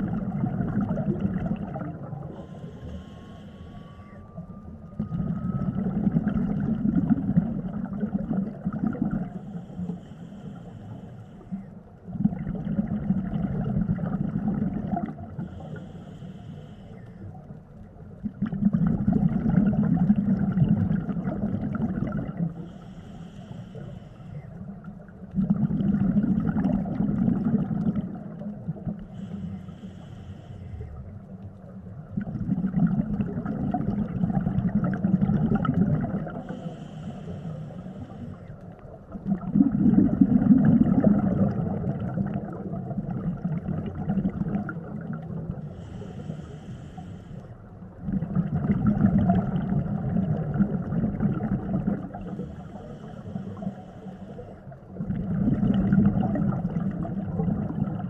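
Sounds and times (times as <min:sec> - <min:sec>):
exhaled bubbles burbling: 0:00.0 - 0:02.6, 0:04.9 - 0:09.5, 0:12.0 - 0:15.6, 0:18.2 - 0:22.7, 0:24.9 - 0:29.2, 0:32.0 - 0:36.8, 0:38.7 - 0:46.2, 0:47.9 - 0:52.6, 0:54.9 - 0:58.0.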